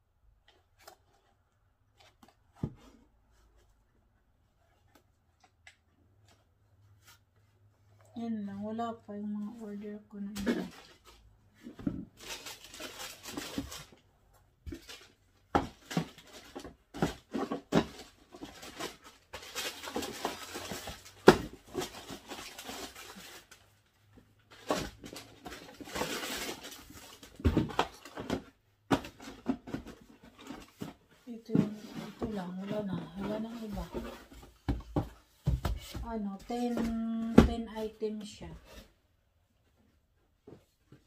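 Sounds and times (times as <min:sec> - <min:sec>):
packaging rustling: 0:12.0 - 0:14.0, 0:14.7 - 0:23.9, 0:24.5 - 0:32.3.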